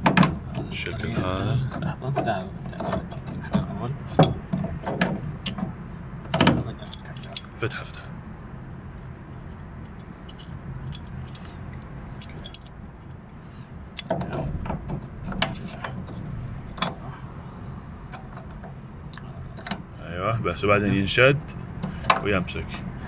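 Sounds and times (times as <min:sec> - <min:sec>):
low steady hum: 0:00.0 - 0:23.0
metal brackets clinking and clicking: 0:06.8 - 0:08.0, 0:09.0 - 0:13.2.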